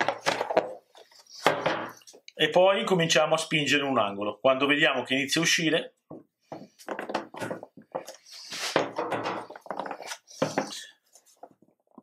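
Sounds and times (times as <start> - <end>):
rubber mould rubbing and scraping: 0.0 - 2.1, 6.6 - 11.6.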